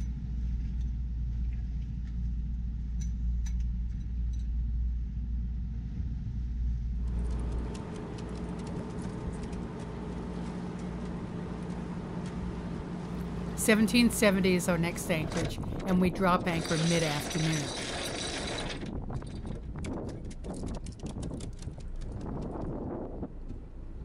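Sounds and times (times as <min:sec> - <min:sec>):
boat engines droning: 0:07.0 - 0:19.6.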